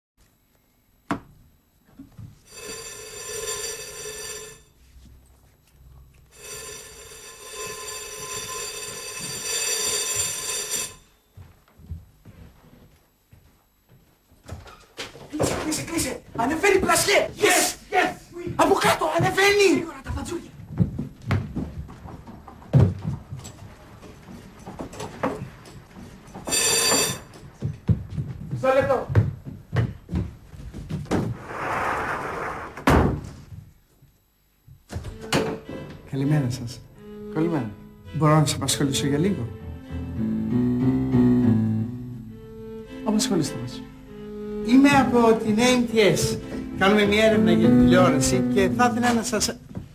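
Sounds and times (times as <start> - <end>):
intercom buzzer ringing: 2.4 - 4.9, 6.3 - 11.4, 26.4 - 27.5
hurried footsteps on wooden floor: 11.3 - 17.6, 18.4 - 31.4, 44.7 - 48.1, 48.7 - 49.9.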